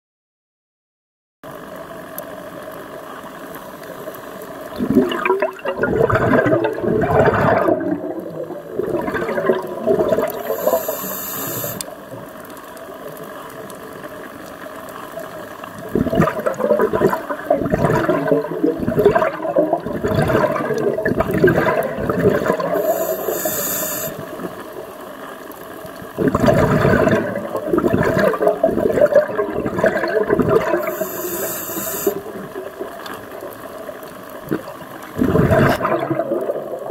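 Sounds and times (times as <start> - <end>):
exhaled bubbles underwater: 4.6 - 14.4, 15.0 - 36.9
regulator inhale hiss: 10.4 - 11.9, 22.7 - 24.4, 30.8 - 32.4.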